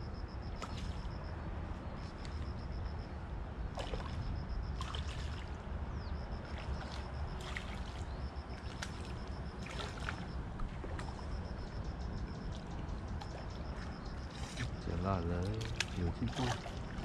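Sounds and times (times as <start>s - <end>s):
wind rumble on microphone: 0.0s - 17.0s
fish splashing in water: 3.7s - 5.6s, 6.4s - 11.3s, 12.5s - 17.0s
faint pulsing high tone: 8.1s - 15.3s.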